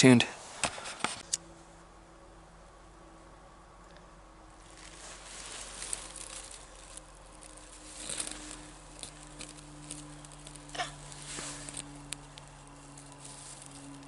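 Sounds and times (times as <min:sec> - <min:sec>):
dry tinder crackling and snapping: 0:04.5 - 0:14.0.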